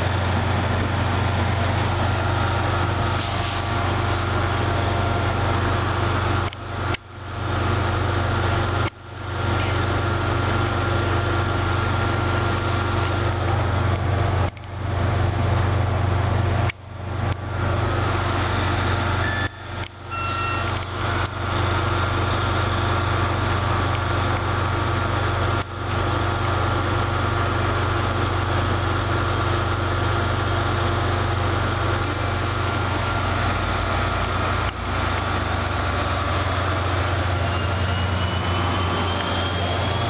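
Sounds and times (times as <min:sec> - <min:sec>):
train engine low hum: 0:00.0 - 0:40.0
two-note chime: 0:19.2 - 0:20.8.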